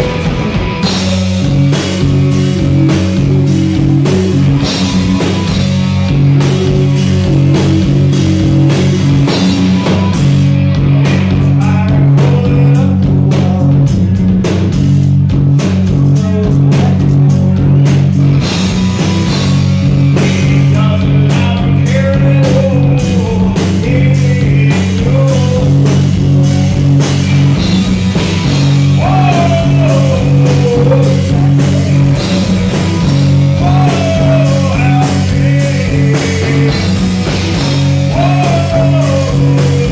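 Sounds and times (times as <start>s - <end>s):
man singing lead: 0.0s - 5.5s, 11.0s - 14.2s, 16.0s - 18.0s, 20.1s - 27.0s, 28.8s - 39.9s
rock band playing live: 0.0s - 39.9s.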